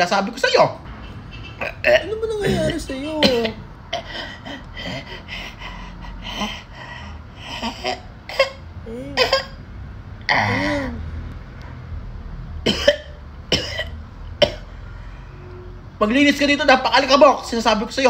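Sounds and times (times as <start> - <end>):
person coughing: 1.6 - 5.1, 7.6 - 9.6, 12.7 - 14.7.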